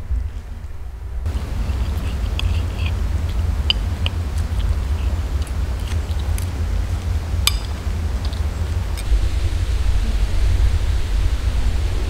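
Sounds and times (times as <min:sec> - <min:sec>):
low rumble: 0:00.0 - 0:12.0
chewing: 0:01.3 - 0:09.1.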